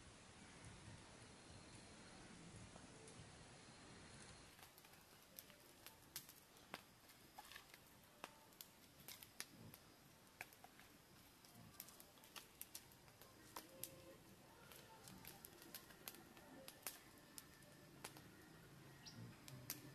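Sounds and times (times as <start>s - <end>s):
campfire crackling and popping: 4.0s - 19.9s.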